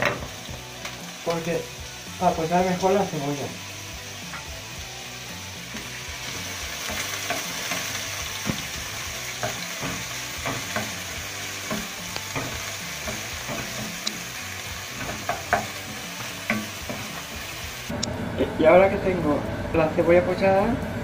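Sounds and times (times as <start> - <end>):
onion sizzling in hot oil: 0.0 - 18.1.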